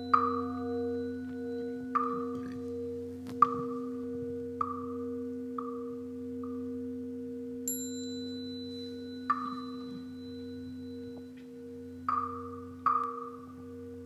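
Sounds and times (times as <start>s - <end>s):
soft struck knocks ringing: 0.0s - 6.6s, 9.2s - 13.5s
high-pitched bell ping: 0.0s - 6.8s, 7.6s - 13.7s
steady low hum: 0.0s - 14.0s.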